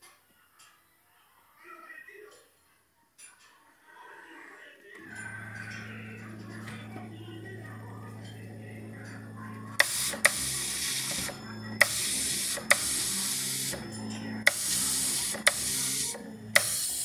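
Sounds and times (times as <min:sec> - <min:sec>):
low steady hum: 0:05.0 - 0:17.0
marking machine hissing buzz: 0:05.0 - 0:17.0
sharp click: 0:14.5 - 0:17.0.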